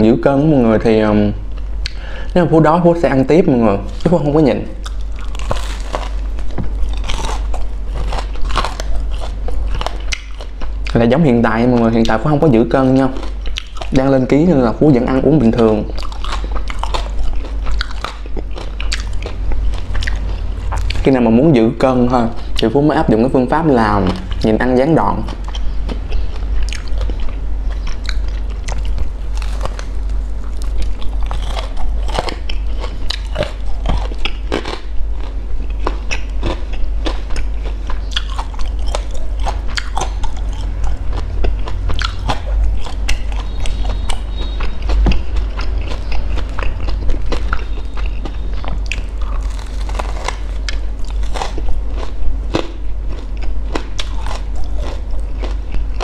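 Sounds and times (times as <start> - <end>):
steady low hum: 0.0 - 56.0
crunchy biting and chewing: 3.0 - 56.0.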